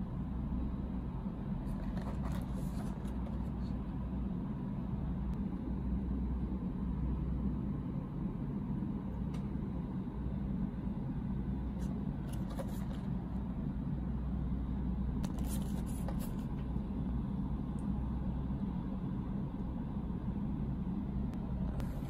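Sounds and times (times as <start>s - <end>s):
low background rumble: 0.0s - 22.0s
cardboard box being handled: 1.7s - 3.7s, 12.2s - 13.1s.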